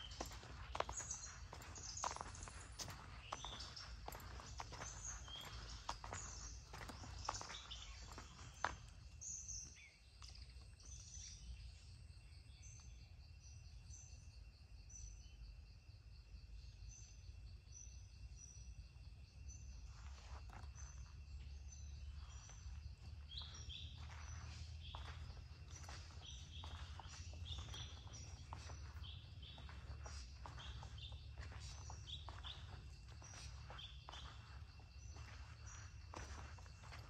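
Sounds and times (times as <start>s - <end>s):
footsteps on dirt path: 0.0s - 10.3s, 19.8s - 37.0s
bird chirping: 0.0s - 13.0s, 20.7s - 37.0s
insect drone: 0.0s - 37.0s.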